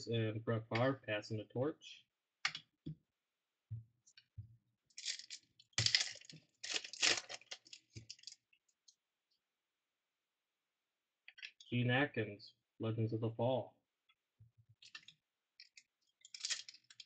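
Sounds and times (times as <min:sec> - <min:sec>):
foil wrapper tearing and crinkling: 0:05.0 - 0:08.4, 0:15.7 - 0:17.0.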